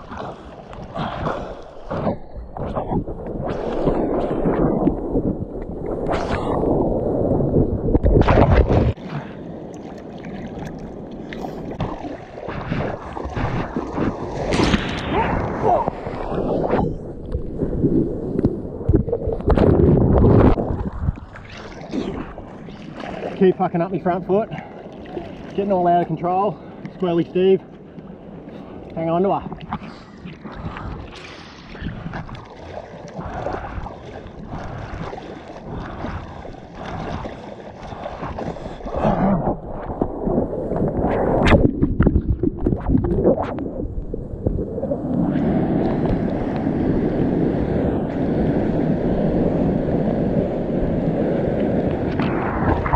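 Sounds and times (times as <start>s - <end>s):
water sloshing and splashing: 0.0s - 46.8s
wind buffeting microphone: 11.7s - 22.4s.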